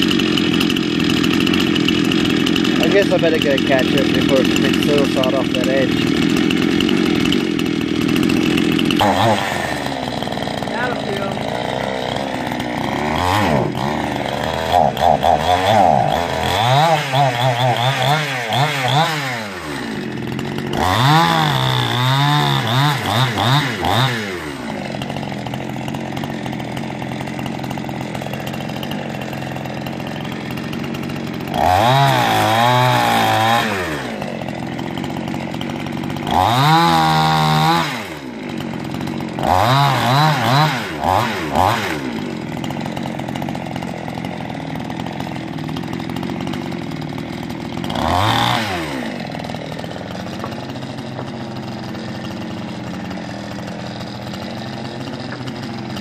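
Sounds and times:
chainsaw idling and revving: 0.0 - 56.0.

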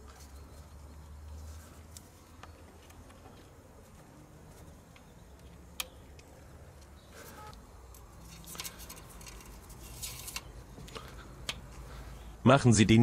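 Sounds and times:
clicks and rattles of fittings: 7.9 - 11.6.

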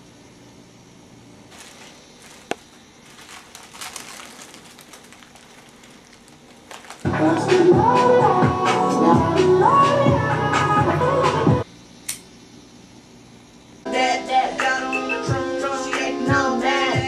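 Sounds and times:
crackling and rustling: 1.5 - 7.5
sharp click: 12.0 - 12.3.

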